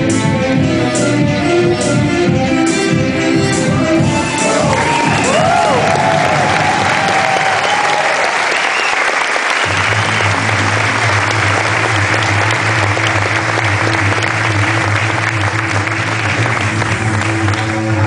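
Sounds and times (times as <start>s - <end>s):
music with deep bass: 0.0s - 7.2s, 9.7s - 18.0s
audience applauding: 3.7s - 18.0s.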